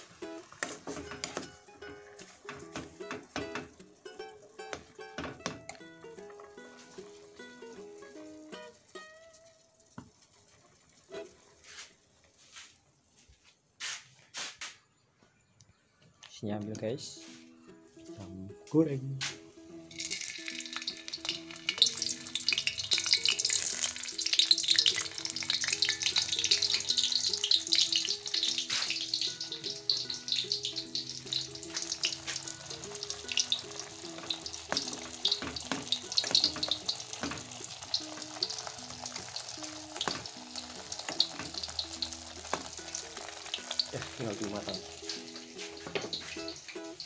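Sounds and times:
sausage sizzling in hot oil: 0:00.0 - 0:05.3, 0:06.1 - 0:12.5, 0:19.6 - 0:47.0
spoon scraping a pan: 0:20.7 - 0:43.9.

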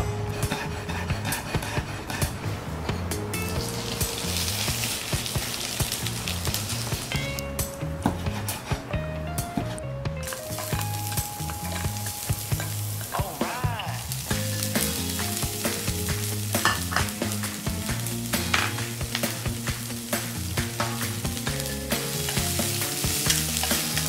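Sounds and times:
soft background music: 0:00.0 - 0:24.0
food sizzling in frying pan: 0:03.5 - 0:07.3, 0:10.2 - 0:24.0
utensils knocking against pan: 0:10.2 - 0:13.2, 0:16.0 - 0:19.2.

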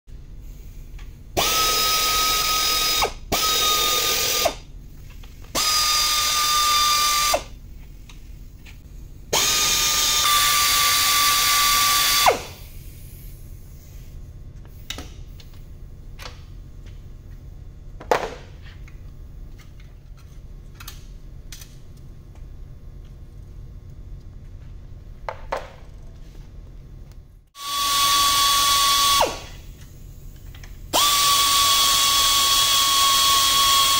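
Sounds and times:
pneumatic wrench whining: 0:01.4 - 0:04.6, 0:05.5 - 0:07.6, 0:09.3 - 0:12.7, 0:27.6 - 0:29.7, 0:30.9 - 0:33.9.

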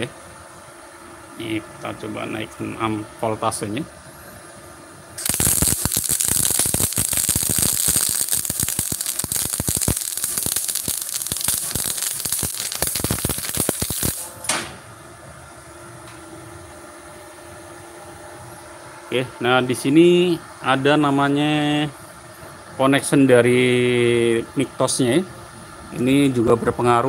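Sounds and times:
welding arc crackling: 0:05.2 - 0:14.4.

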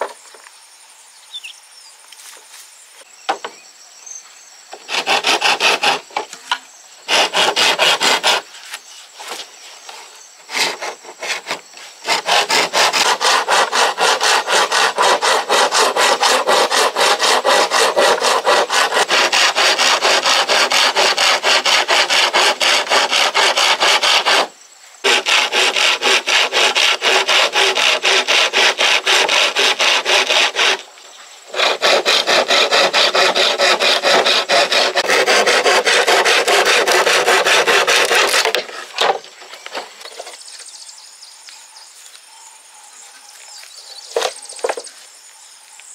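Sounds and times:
hand saw cutting bamboo: 0:04.8 - 0:06.5, 0:07.1 - 0:09.4, 0:10.5 - 0:30.8, 0:31.5 - 0:39.8.

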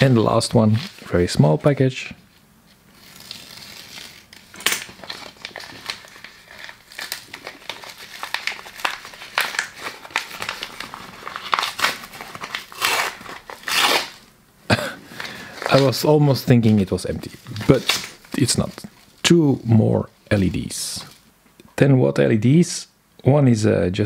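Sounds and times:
paper ripping: 0:00.0 - 0:01.4, 0:02.7 - 0:14.3, 0:15.2 - 0:21.2
paper crackling: 0:00.0 - 0:01.7, 0:02.6 - 0:14.3, 0:15.1 - 0:21.2.

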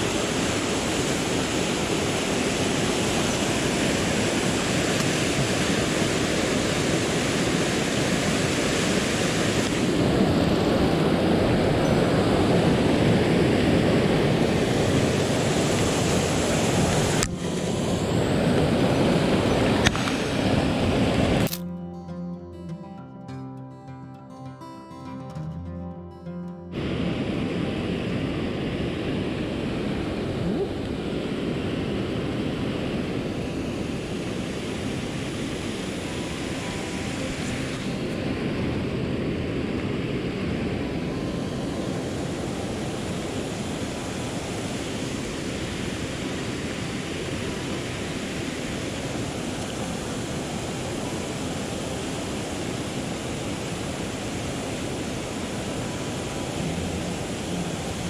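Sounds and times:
water rushing over weir: 0:00.0 - 0:21.6, 0:26.7 - 0:58.0.

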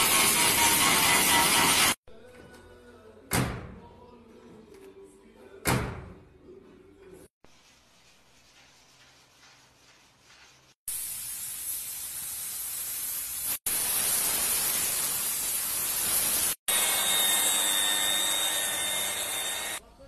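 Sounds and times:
paint spray gun hissing: 0:10.9 - 0:16.6.

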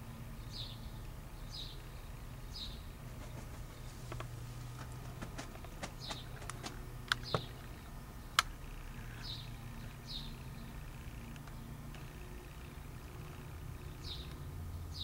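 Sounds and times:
steady low hum: 0:00.0 - 0:15.0
small bird chirping: 0:00.3 - 0:15.0
sharp clicks and taps: 0:04.1 - 0:07.5.

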